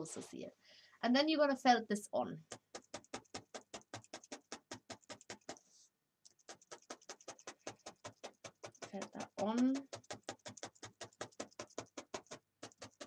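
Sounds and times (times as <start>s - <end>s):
felting needle ticking: 2.4s - 5.6s, 6.2s - 13.0s.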